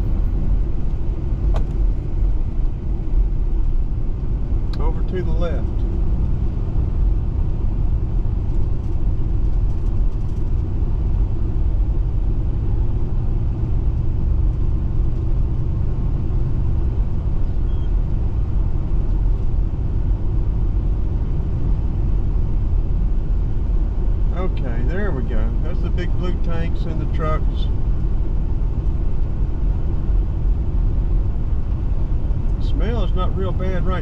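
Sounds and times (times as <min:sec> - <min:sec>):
car road and engine rumble: 0:00.0 - 0:34.0.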